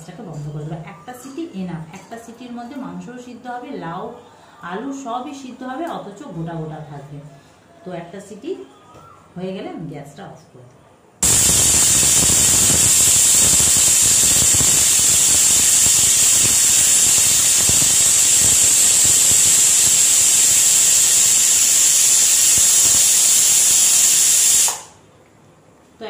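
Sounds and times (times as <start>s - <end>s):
pressure cooker whistling: 11.2s - 25.0s.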